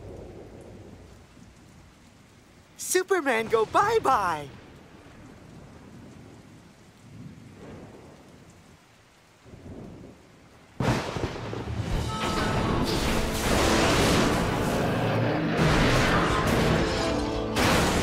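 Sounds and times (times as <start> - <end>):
steady rain: 0.0 - 18.0
thunder boom rumbling: 10.8 - 17.0
music: 11.9 - 14.6, 16.1 - 18.0.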